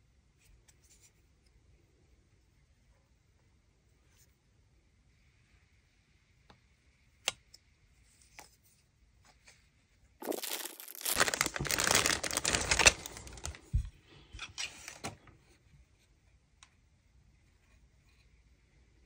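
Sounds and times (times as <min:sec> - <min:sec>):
plastic bag crinkling: 0:10.2 - 0:13.9.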